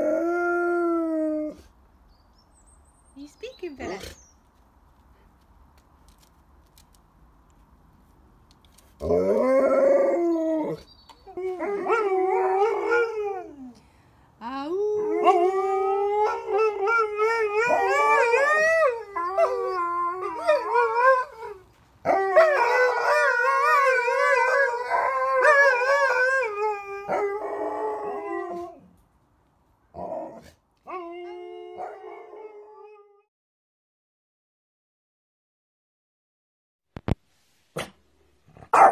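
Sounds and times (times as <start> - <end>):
dog howling: 14.9 - 28.8, 30.0 - 33.3.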